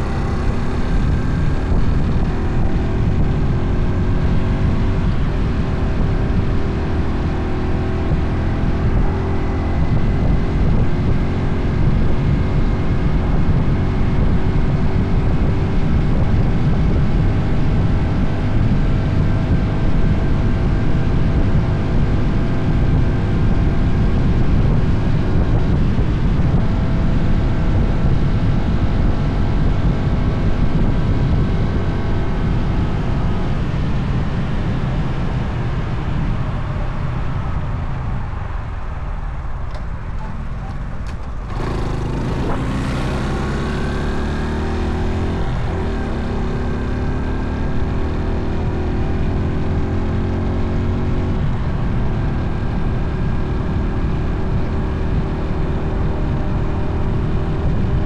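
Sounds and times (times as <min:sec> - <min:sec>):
motorcycle engine hum: 0:00.0 - 0:58.0
wind buffeting microphone: 0:00.0 - 0:58.0.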